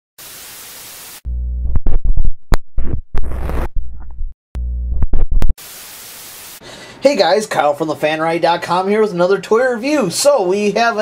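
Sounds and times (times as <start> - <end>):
static hiss: 0.2 - 1.2, 5.6 - 6.6
low electric buzz: 1.3 - 1.8, 4.6 - 5.2.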